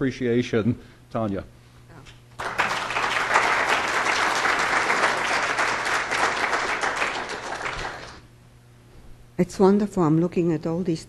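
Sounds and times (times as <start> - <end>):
audience applauding: 2.4 - 8.3.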